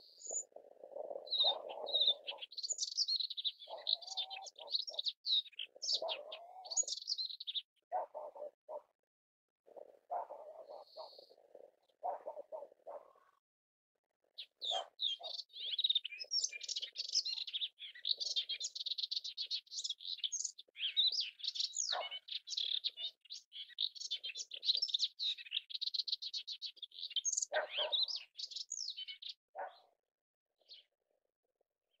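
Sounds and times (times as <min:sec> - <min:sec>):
warbler singing: 0:00.0 - 0:08.5, 0:09.8 - 0:13.0, 0:14.4 - 0:29.9.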